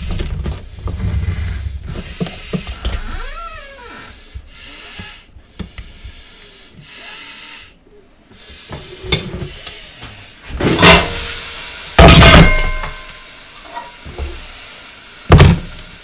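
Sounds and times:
meat sizzling in hot pan: 0:10.8 - 0:16.0.

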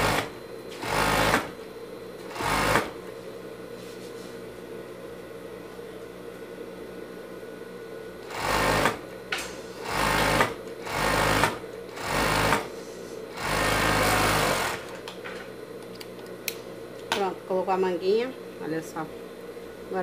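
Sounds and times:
overlock sewing machine running: 0:00.0 - 0:01.6, 0:02.3 - 0:02.9, 0:08.3 - 0:09.0, 0:09.8 - 0:12.7, 0:13.3 - 0:15.0.

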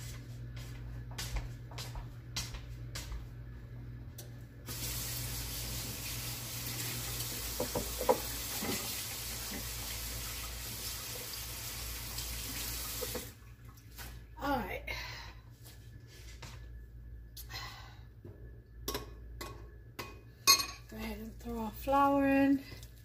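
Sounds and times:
tap water running into sink: 0:04.7 - 0:13.4.

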